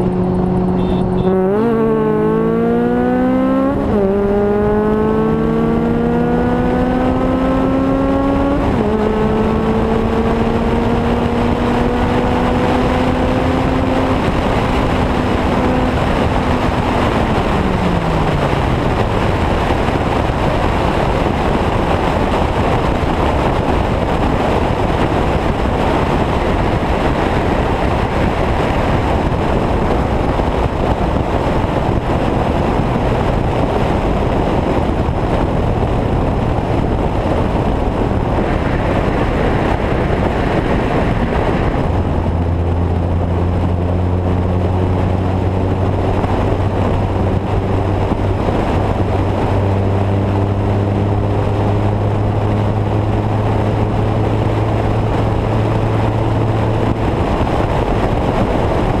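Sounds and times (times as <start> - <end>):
heavy wind rush: 0.0 - 59.0
low steady engine drone: 0.0 - 59.0
road noise: 0.0 - 59.0.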